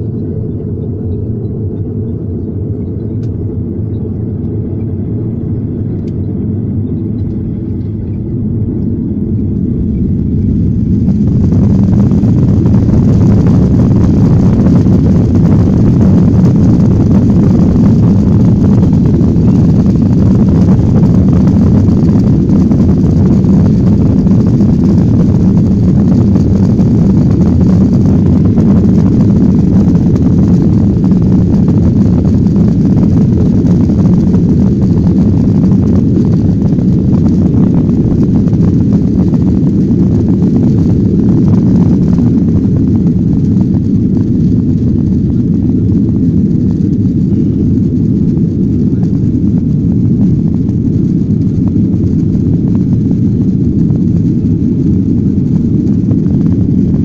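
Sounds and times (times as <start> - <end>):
jet engines rumbling: 0.0 - 57.0.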